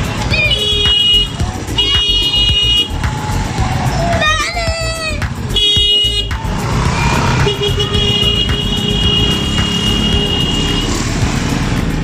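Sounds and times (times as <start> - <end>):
motorcycle engines rumbling: 0.0 - 12.0.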